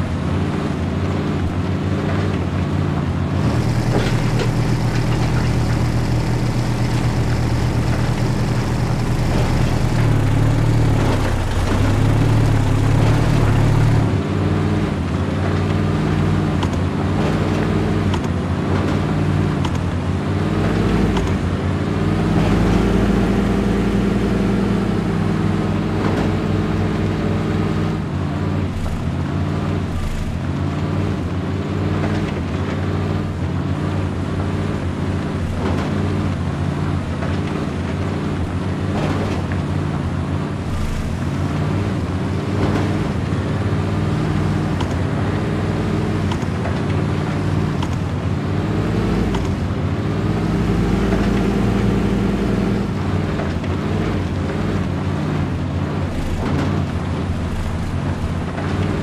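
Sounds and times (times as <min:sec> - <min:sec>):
toy truck motor droning: 0:03.4 - 0:14.0.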